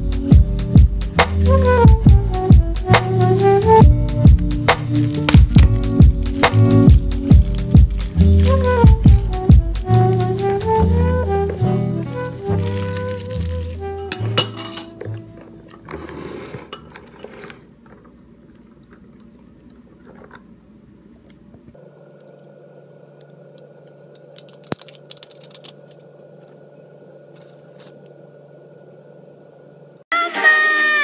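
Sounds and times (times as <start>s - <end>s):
low room hum: 0.0s - 30.1s
ice rattling in a glass: 12.2s - 15.0s.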